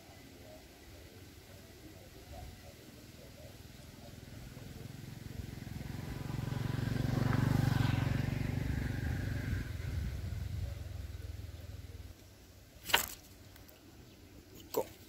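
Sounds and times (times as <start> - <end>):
vehicle engine passing by: 4.0 - 12.1.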